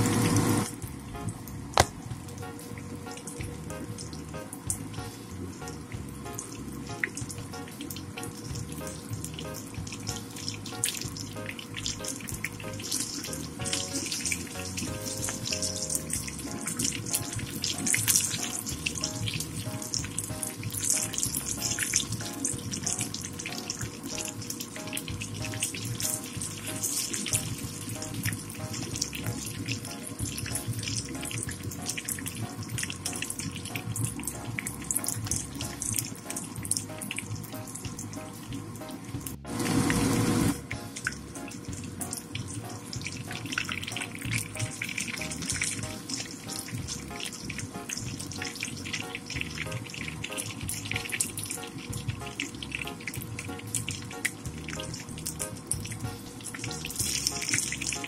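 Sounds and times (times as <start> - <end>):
background music: 0.0 - 58.0
fritters sizzling in oil: 0.0 - 58.0.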